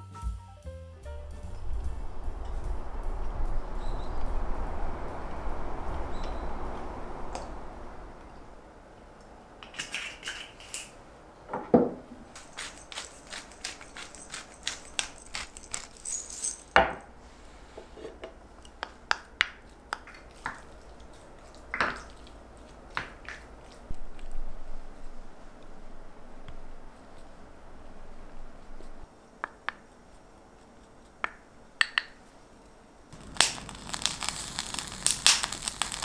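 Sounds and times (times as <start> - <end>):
pepper mill grinding: 9.6 - 10.9, 12.3 - 16.7, 33.2 - 36.0.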